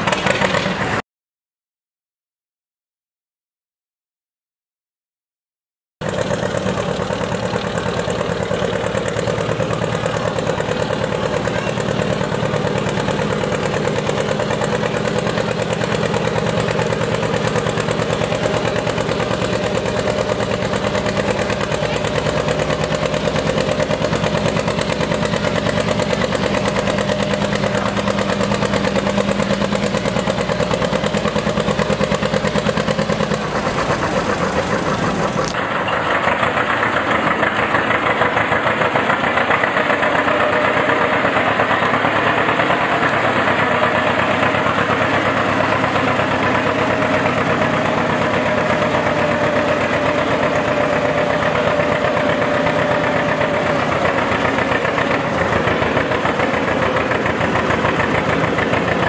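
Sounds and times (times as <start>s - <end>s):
tractor engine running: 0.0s - 1.0s, 6.0s - 59.0s.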